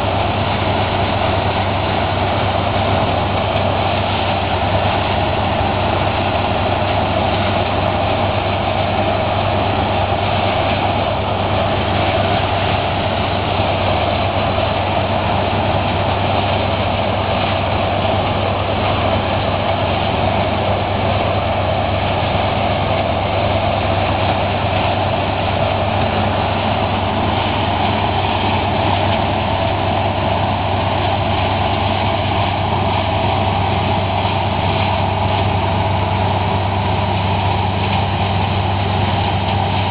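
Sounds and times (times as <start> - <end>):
combine harvester droning: 0.0 - 39.9.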